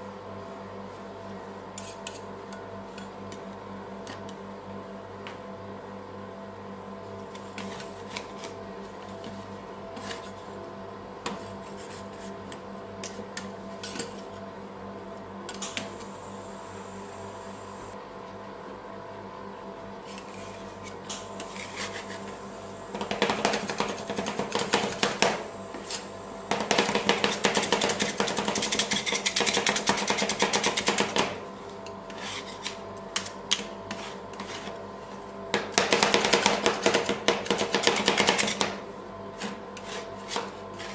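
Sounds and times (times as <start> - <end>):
steady hum: 0.0 - 40.9
metal spatulas chopping on plate: 35.6 - 38.8.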